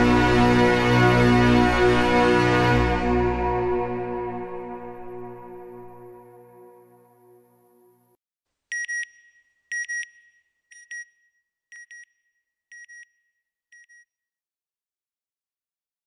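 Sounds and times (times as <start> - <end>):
background music chord: 0.0 - 8.2.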